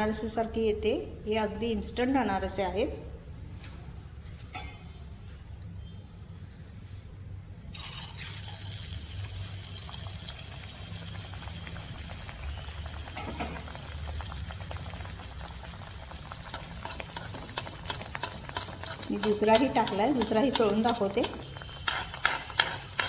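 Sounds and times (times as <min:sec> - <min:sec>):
dough sizzling in hot oil: 0:07.8 - 0:23.0
spoon scraping a pan: 0:16.5 - 0:23.0.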